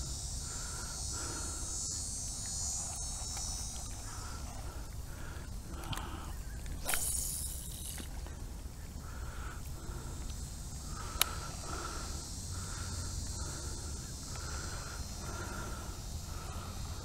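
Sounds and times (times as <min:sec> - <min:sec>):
insects buzzing: 0:00.0 - 0:17.0
sharp click: 0:06.7 - 0:08.2.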